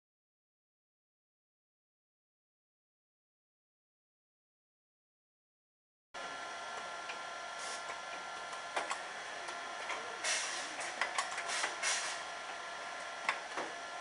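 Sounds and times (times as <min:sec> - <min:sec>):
machinery humming and whining: 0:06.2 - 0:14.0
short hissing bursts: 0:11.5 - 0:12.2.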